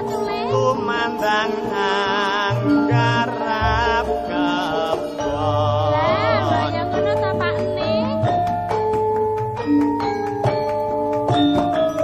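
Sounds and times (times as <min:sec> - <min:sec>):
person singing wavering notes: 0:00.0 - 0:08.4
gamelan music: 0:00.0 - 0:12.0.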